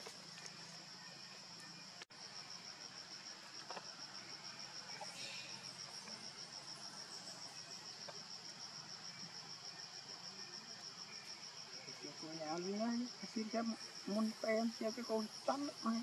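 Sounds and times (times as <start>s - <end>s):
soft hiss: 0.0s - 9.0s
insect chirping trill: 0.0s - 16.0s.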